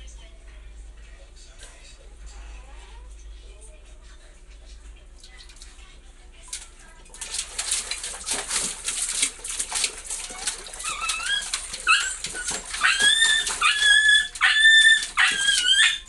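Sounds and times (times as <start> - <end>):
puppy splashing in water: 5.2 - 16.0
puppy whining: 10.1 - 16.0.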